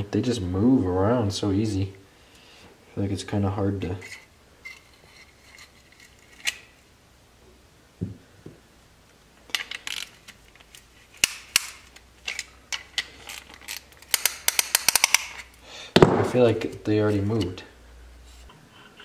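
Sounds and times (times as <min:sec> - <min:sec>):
metallic ratchet clicks: 0:13.3 - 0:15.5.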